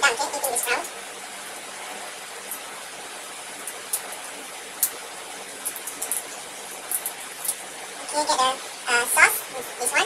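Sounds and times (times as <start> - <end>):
steady background hiss: 0.0 - 10.0
prawn shells clicking and crackling: 2.4 - 2.8, 3.5 - 7.8.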